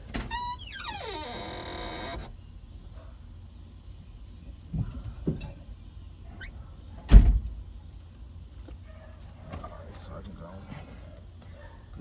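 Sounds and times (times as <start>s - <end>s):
loud deep thump: 7.1s - 7.5s.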